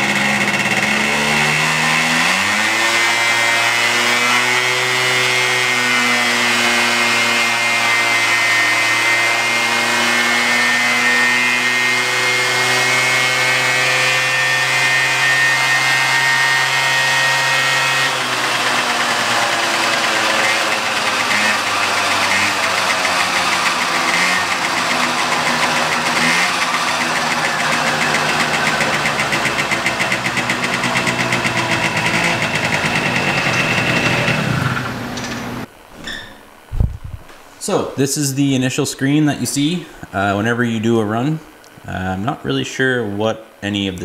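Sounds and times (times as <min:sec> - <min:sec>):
two-stroke moped engine at full throttle: 0:00.0 - 0:35.2.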